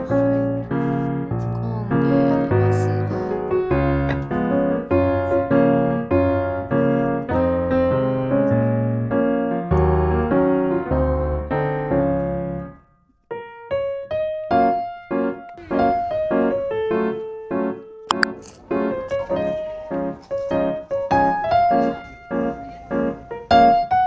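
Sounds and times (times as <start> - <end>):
piano playing chords: 0.0 - 24.0.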